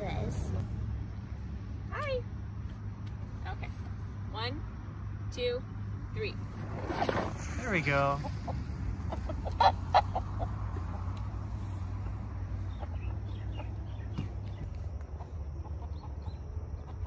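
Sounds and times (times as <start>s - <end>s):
steady low rumble: 0.0s - 17.0s
rooster clucking: 8.1s - 13.9s, 15.1s - 17.0s.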